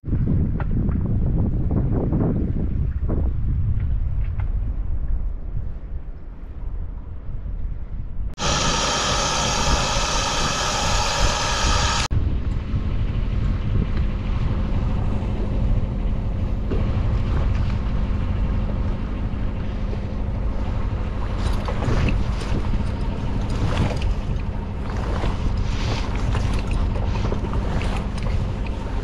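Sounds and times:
wind buffeting microphone: 0:00.0 - 0:29.0
boat engine running: 0:08.4 - 0:29.0
sail fluttering and rustling: 0:12.3 - 0:29.0.

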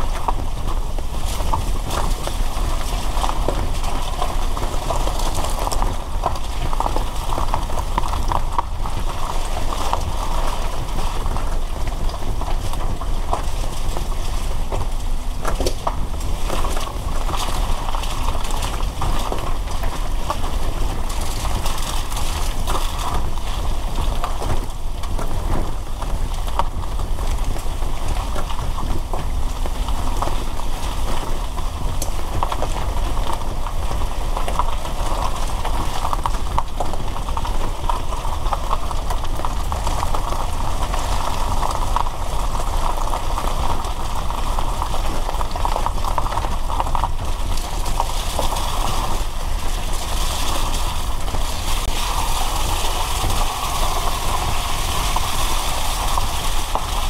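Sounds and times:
raindrops ticking on car: 0:00.0 - 0:57.0
tyres hissing on wet road: 0:50.4 - 0:57.0.

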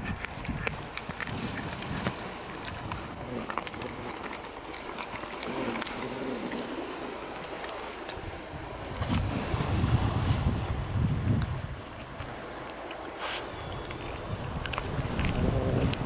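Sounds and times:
cat chewing fish: 0:00.0 - 0:16.0.

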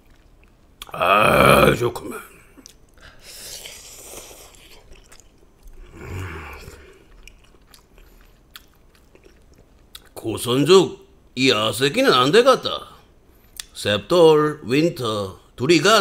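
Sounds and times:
chewing and mouth sounds: 0:00.0 - 0:01.0, 0:02.6 - 0:10.2
person slurping noodles: 0:05.8 - 0:07.2.

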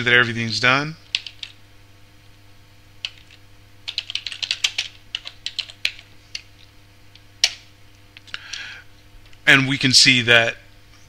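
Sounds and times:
computer keyboard typing: 0:01.1 - 0:01.6, 0:03.0 - 0:06.5, 0:07.4 - 0:07.6.

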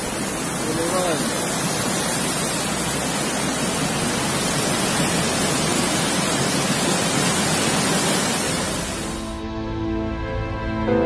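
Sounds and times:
river water rushing: 0:00.0 - 0:09.3
music: 0:09.2 - 0:11.0.

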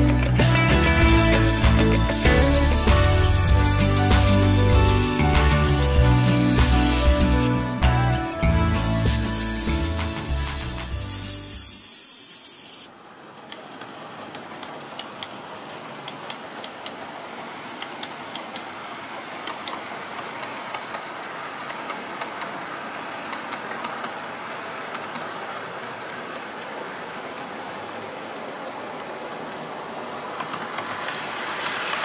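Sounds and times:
model train running on track: 0:00.0 - 0:07.9, 0:08.6 - 0:32.0
background music: 0:00.0 - 0:11.5.

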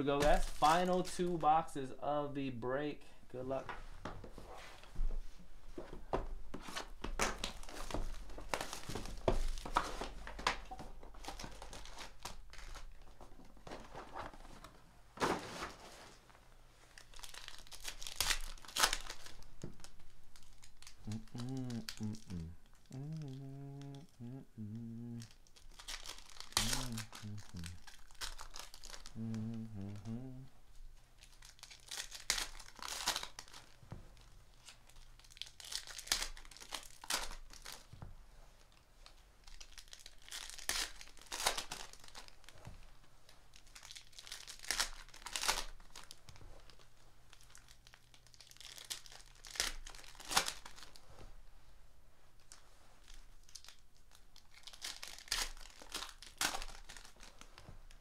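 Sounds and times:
foil wrappers crinkling and tearing: 0:00.2 - 0:01.7, 0:06.7 - 0:14.4, 0:16.9 - 0:24.0, 0:25.0 - 0:30.4, 0:31.2 - 0:37.9, 0:38.6 - 0:42.8, 0:43.4 - 0:51.0, 0:52.4 - 0:58.0.

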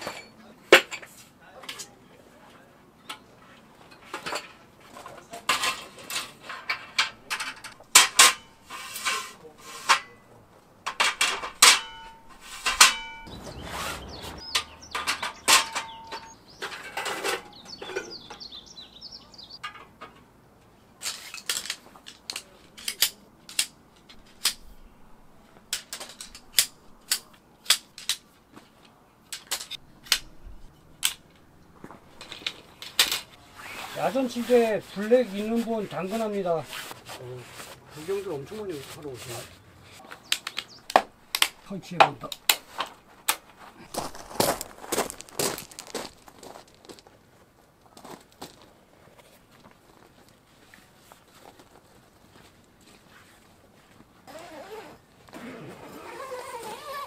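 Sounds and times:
dishes clinking and knocking: 0:10.9 - 0:18.2.

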